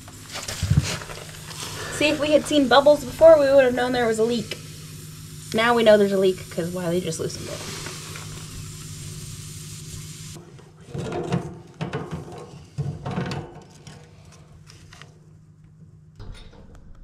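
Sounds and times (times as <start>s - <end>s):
gas hissing from a fitting: 0.0s - 10.4s.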